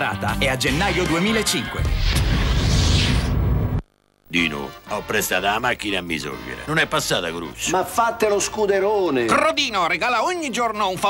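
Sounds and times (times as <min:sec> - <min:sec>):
hiss: 0:02.1 - 0:03.3.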